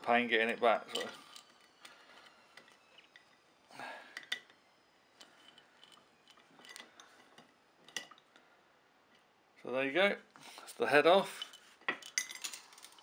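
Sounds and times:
metallic clicks and clinks of chain: 11.3 - 13.0.

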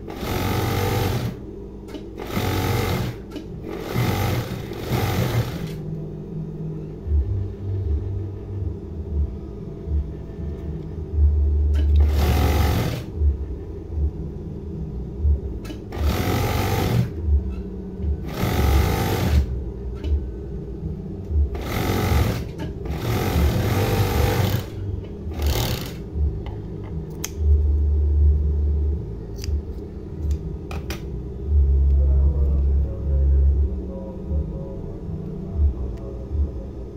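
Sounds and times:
sewing machine stitching: 0.0 - 1.4, 2.2 - 5.8, 11.8 - 13.1, 15.9 - 17.2, 18.2 - 19.5, 21.6 - 26.0
low motor hum: 0.0 - 36.9.

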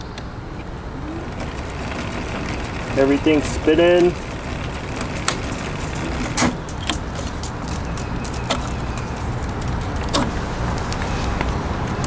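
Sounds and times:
electric hub motor humming: 0.6 - 7.6.

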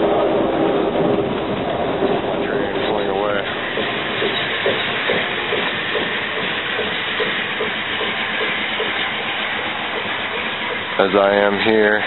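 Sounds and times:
train hissing: 0.0 - 12.0.

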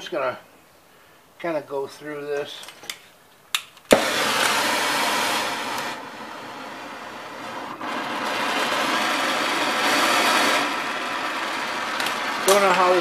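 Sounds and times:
torch igniting pop: 3.5 - 13.0
torch flame hissing: 3.9 - 13.0.

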